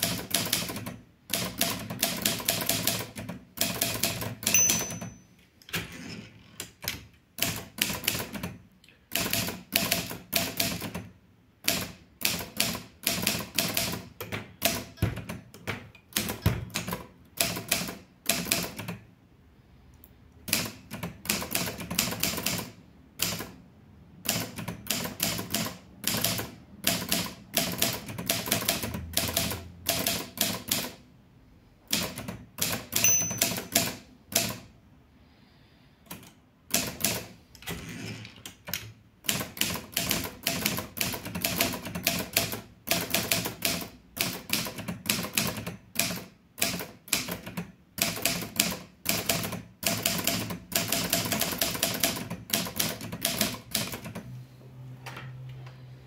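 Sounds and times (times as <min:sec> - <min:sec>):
typewriter keys clacking: 0:32.0 - 0:34.6.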